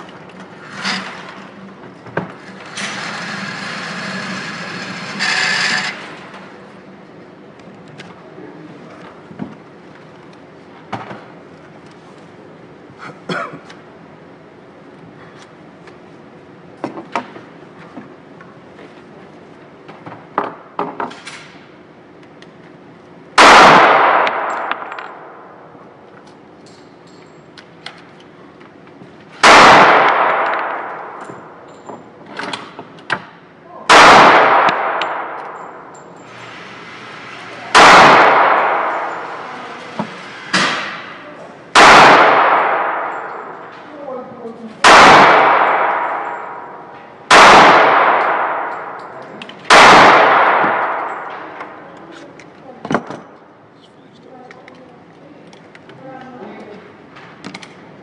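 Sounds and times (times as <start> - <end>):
gunshot echoing indoors: 23.4 - 25.6, 29.4 - 31.6, 33.9 - 35.9, 37.7 - 39.5, 40.6 - 43.6, 44.8 - 51.8.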